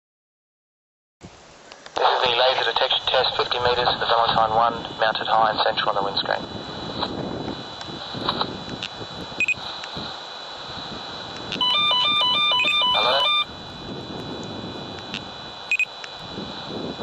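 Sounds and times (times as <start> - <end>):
short high beeps: 9.4 - 9.6, 11.6 - 13.5
rapid alternating two-pitch beeping: 11.6 - 13.5.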